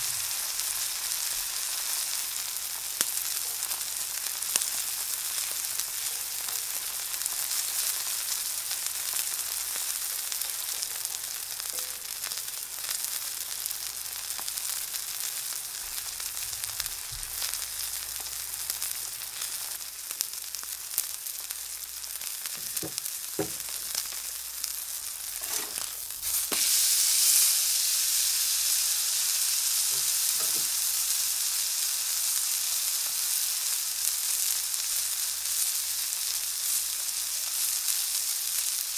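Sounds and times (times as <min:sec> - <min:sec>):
steak sizzling on griddle: 0:00.0 - 0:38.9
fat popping: 0:22.5 - 0:24.1.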